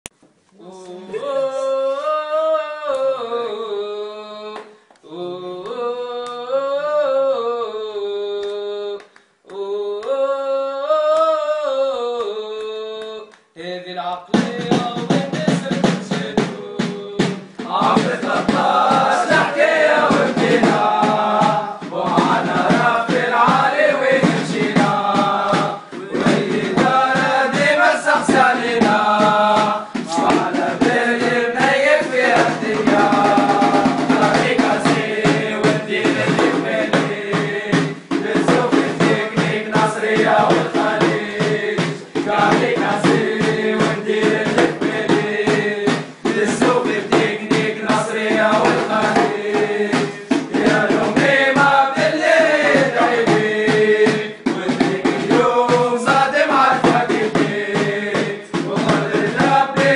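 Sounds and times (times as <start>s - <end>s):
person singing: 0.5s - 59.9s
drum beat: 14.3s - 59.9s.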